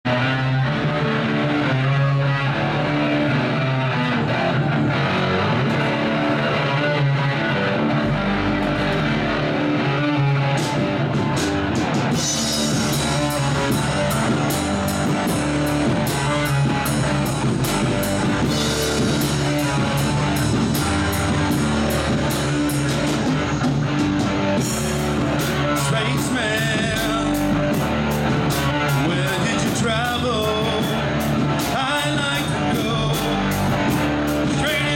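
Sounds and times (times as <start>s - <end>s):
bass guitar: 0.0s - 34.9s
electric guitar: 0.0s - 34.9s
drum cymbals: 11.4s - 26.0s
person singing: 25.3s - 34.9s.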